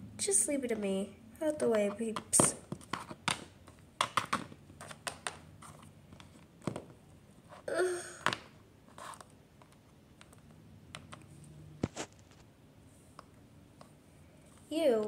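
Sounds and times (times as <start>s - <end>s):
plastic toys tapping on wooden floor: 1.7s - 5.4s.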